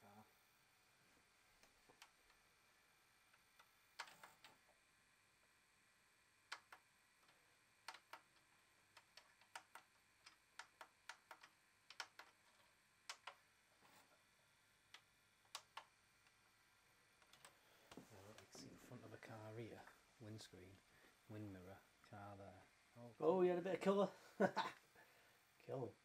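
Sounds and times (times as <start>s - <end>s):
low hiss: 0.0s - 26.0s
faint irregular clicking: 1.6s - 2.4s, 6.5s - 13.4s, 14.8s - 16.4s, 17.2s - 18.6s.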